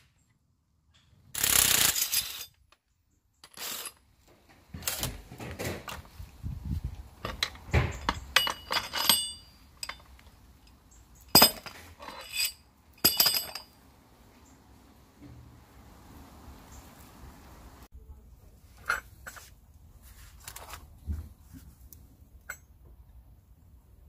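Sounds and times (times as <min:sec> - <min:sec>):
metal clamps clinking and clanking: 0:07.2 - 0:13.8.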